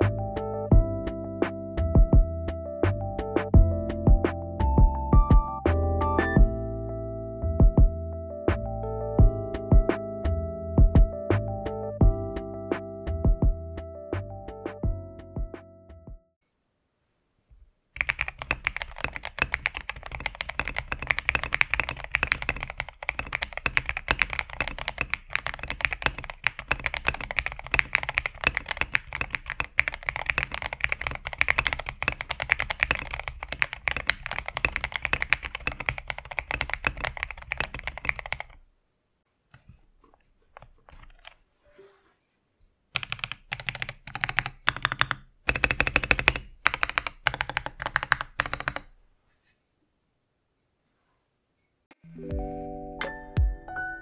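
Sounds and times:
fast typing on mechanical keyboard: 18.0 - 38.6, 40.6 - 41.4, 43.0 - 48.9.

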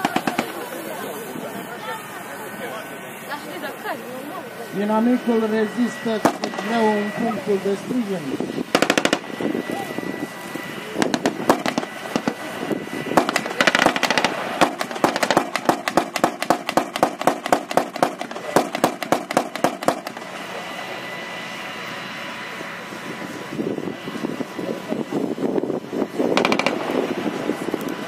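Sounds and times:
machine-gun fire in bursts: 0.0 - 0.7, 6.2 - 6.8, 8.7 - 9.3, 11.0 - 12.5, 13.1 - 20.2, 26.3 - 27.1
tank engine drone: 0.0 - 28.0.

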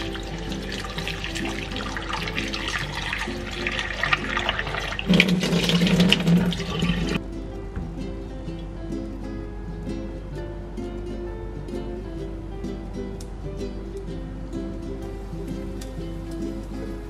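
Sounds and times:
tap running into a bowl: 0.0 - 7.2
water splashing into a sink: 0.0 - 7.2
light background music: 0.0 - 17.0.

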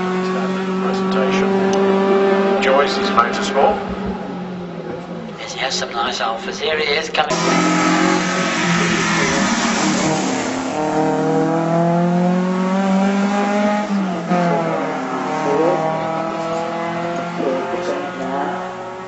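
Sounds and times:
car engine accelerating hard: 0.0 - 5.9, 7.2 - 19.0.

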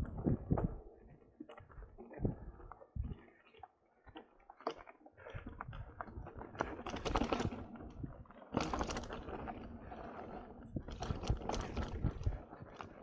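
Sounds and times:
bike rattling over bumps: 5.7 - 12.9.

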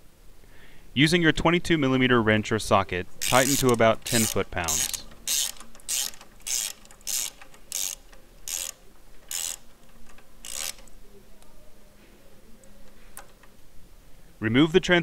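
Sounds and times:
socket ratchet clicking: 3.2 - 11.0.

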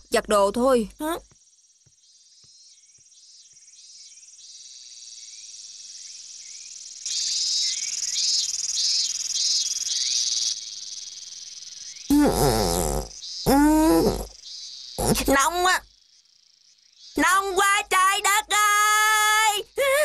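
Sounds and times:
cicadas buzzing: 0.1 - 20.0.

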